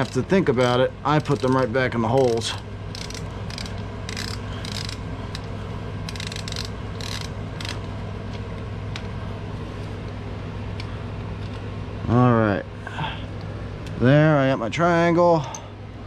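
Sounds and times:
hand ratchet clicking: 1.2s - 5.5s, 6.1s - 7.8s.

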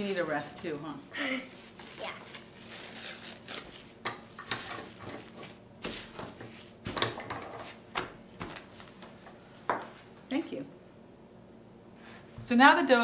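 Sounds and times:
plastic cling wrap crinkling: 0.0s - 5.6s.

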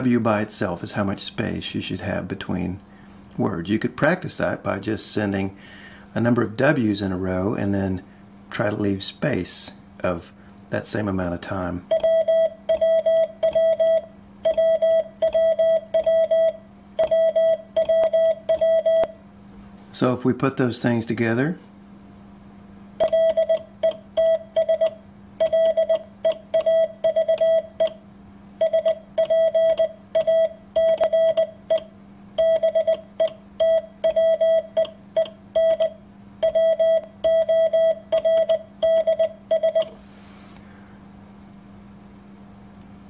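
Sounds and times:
low steady hum: 0.0s - 43.0s
morse code beeps: 11.9s - 19.1s, 23.0s - 28.0s, 28.6s - 39.9s.

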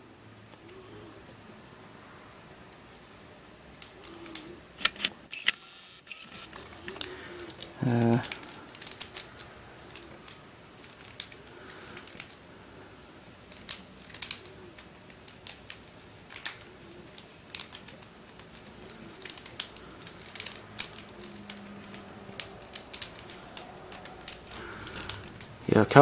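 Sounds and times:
plastic puzzle pieces clicking: 6.4s - 12.4s, 13.5s - 25.6s.

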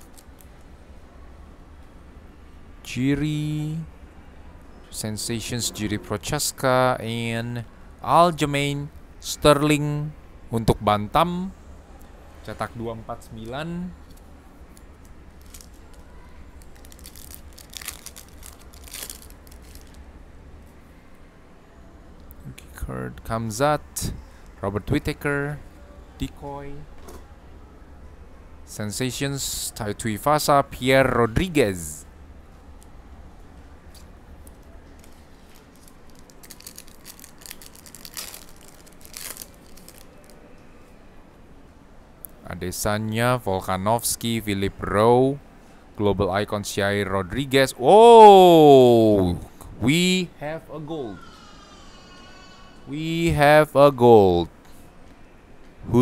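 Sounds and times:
foil wrapper crinkling and tearing: 15.4s - 20.0s, 35.0s - 40.4s.

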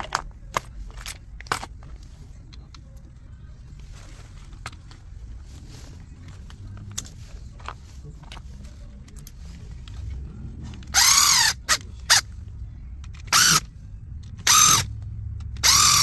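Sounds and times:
electric screwdriver whirring: 10.9s - 12.2s, 13.3s - 13.7s, 14.4s - 14.9s, 15.6s - 16.0s.

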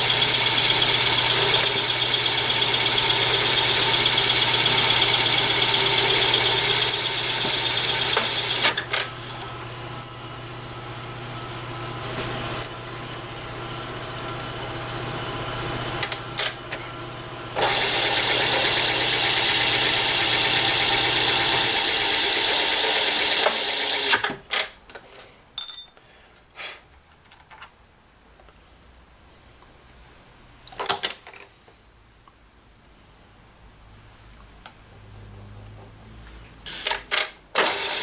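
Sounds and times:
drill bit cutting cast iron: 0.0s - 8.7s, 20.5s - 24.2s
drill press motor running: 0.0s - 9.6s, 17.5s - 24.2s, 37.6s - 38.0s.

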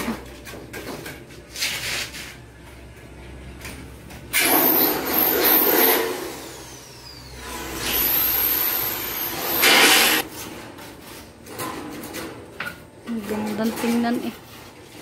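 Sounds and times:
power tool whining: 4.4s - 10.2s.

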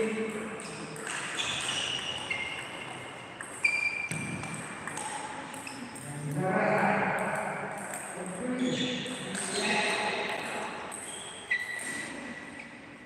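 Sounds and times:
loud table tennis hit: 0.0s - 5.8s
table tennis balls clicking: 0.3s - 6.1s.

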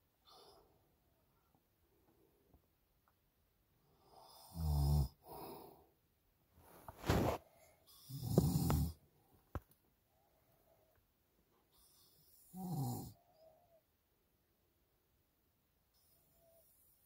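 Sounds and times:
man snoring: 4.2s - 5.5s, 8.0s - 9.0s, 12.4s - 13.2s.

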